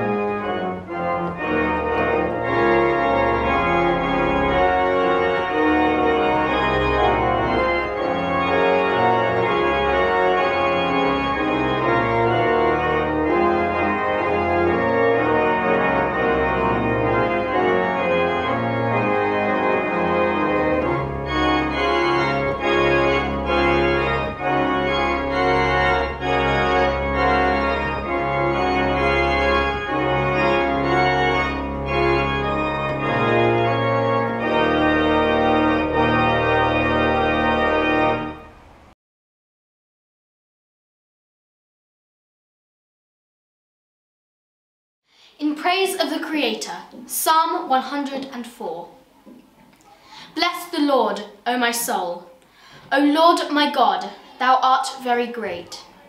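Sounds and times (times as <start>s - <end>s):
organ playing chords: 0.0s - 38.9s.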